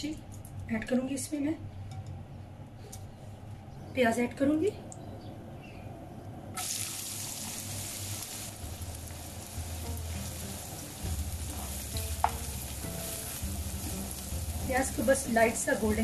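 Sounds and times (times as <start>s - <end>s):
onions sizzling in oil: 6.6s - 16.0s
spatula tapping on pan: 11.5s - 12.7s.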